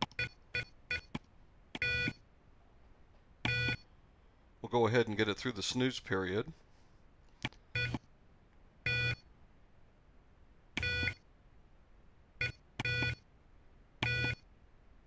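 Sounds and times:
short electronic alarm beeps: 0:01.8 - 0:02.2, 0:03.5 - 0:03.8, 0:07.7 - 0:08.0, 0:08.8 - 0:09.2, 0:10.8 - 0:11.2, 0:12.4 - 0:13.2, 0:14.0 - 0:14.5.

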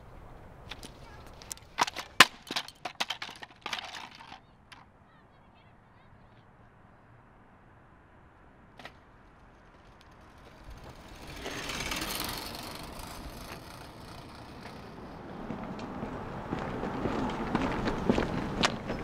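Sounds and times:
bicycle tyres and air rushing: 0:08.8 - 0:19.0.

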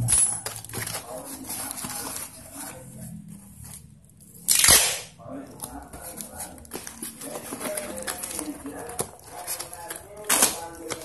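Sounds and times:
handling tape and cardboard box: 0:00.0 - 0:03.8, 0:05.6 - 0:11.0
packing tape ripping off roll: 0:04.5 - 0:05.1.

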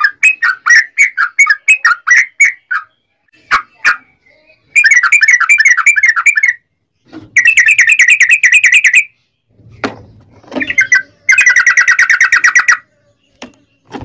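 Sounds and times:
bird rolling chatter: 0:09.8 - 0:12.8.

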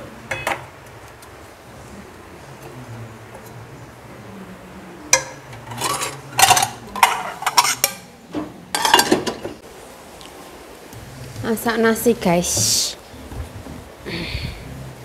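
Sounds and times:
cookware clattering: 0:00.3 - 0:00.7, 0:05.1 - 0:09.6.

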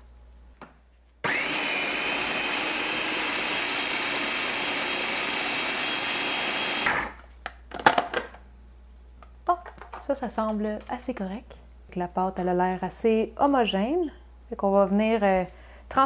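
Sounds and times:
food processor motor blending: 0:01.2 - 0:07.2.

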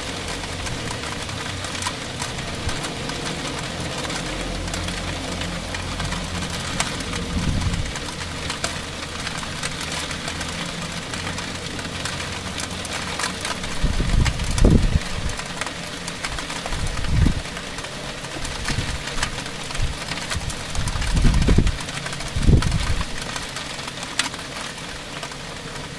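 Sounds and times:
heavy rain on roof tiles: 0:00.0 - 0:25.9
low rumble: 0:02.2 - 0:09.7.

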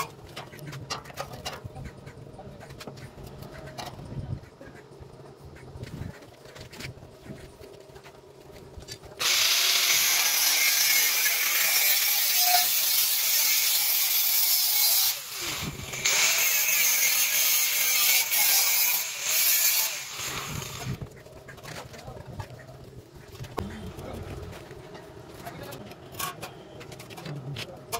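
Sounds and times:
angle grinder grinding metal: 0:09.2 - 0:21.0.

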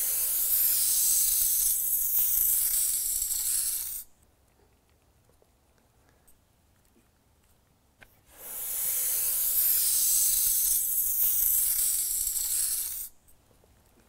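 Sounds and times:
gas hissing from hose fitting: 0:00.0 - 0:04.1, 0:08.3 - 0:13.1.

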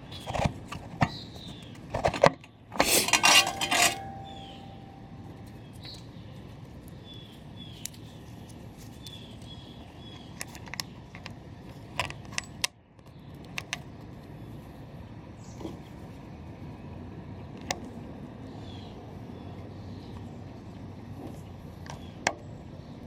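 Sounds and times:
steady background noise: 0:00.0 - 0:23.0
metallic tool clicks and clinks: 0:03.0 - 0:05.0.

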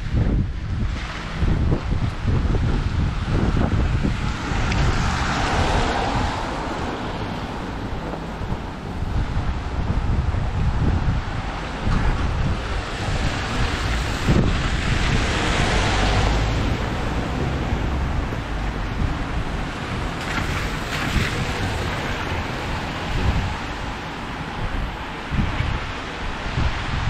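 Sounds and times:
rainy street hiss: 0:00.0 - 0:27.0
wind buffeting microphone: 0:00.0 - 0:27.0.

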